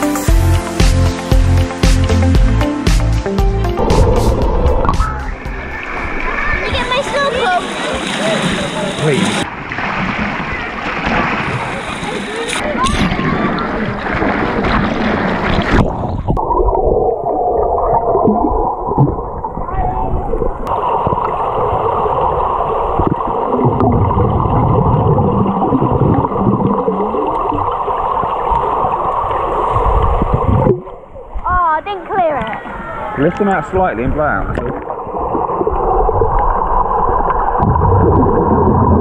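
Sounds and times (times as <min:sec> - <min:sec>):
muffled underwater sound: 0:03.8 - 0:09.5, 0:10.4 - 0:33.2
water splashing in a pool: 0:03.8 - 0:39.0.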